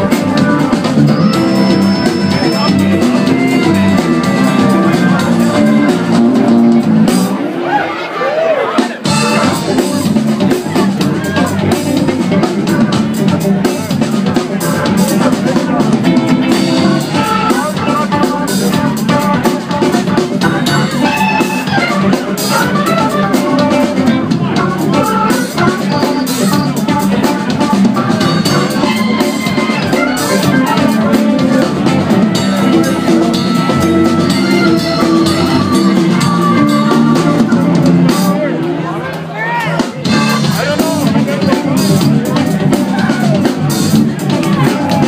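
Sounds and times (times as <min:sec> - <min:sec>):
funk band playing: 0:00.0 - 0:45.0.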